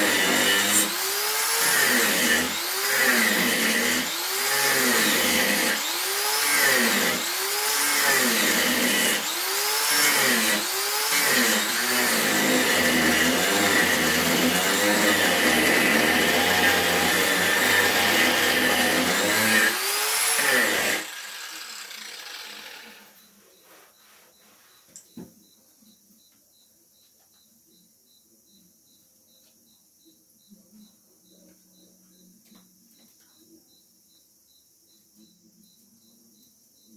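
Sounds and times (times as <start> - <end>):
angle grinder sanding wood: 0.0 - 23.0.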